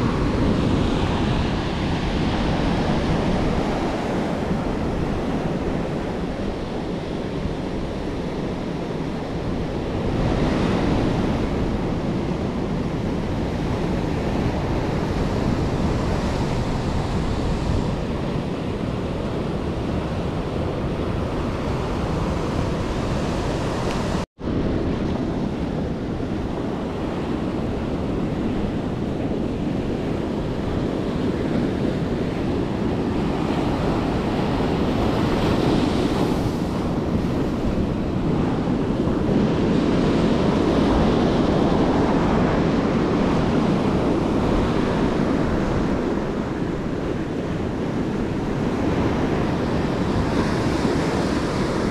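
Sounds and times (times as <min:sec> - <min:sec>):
ocean surf breaking: 0:00.0 - 0:51.9
wind buffeting microphone: 0:00.0 - 0:51.9.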